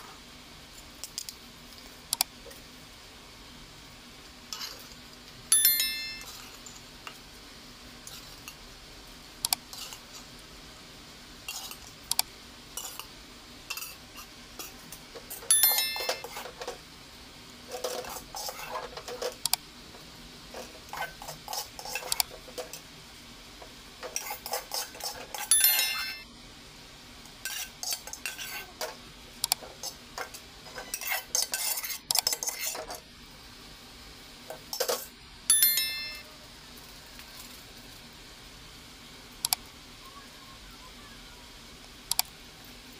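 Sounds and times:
ringing knocks on pot: 15.5s - 16.2s, 25.5s - 26.2s, 35.5s - 36.2s
metal spoon scraping metal pot: 17.7s - 19.1s, 20.6s - 22.3s, 24.0s - 26.2s, 27.4s - 28.7s, 29.7s - 33.0s.

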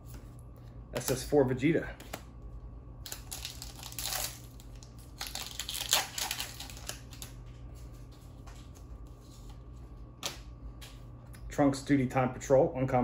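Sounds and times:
foil wrapper crinkling and tearing: 3.0s - 7.4s.

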